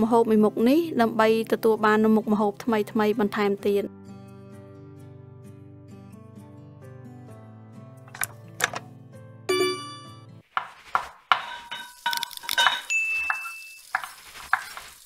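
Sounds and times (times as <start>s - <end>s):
clinks and dings sound effect: 9.5s - 10.3s, 11.3s - 14.0s.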